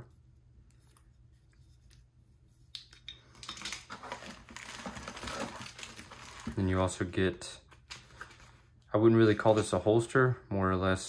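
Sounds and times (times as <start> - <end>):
packaging crinkling: 3.3 - 6.9, 7.7 - 8.7.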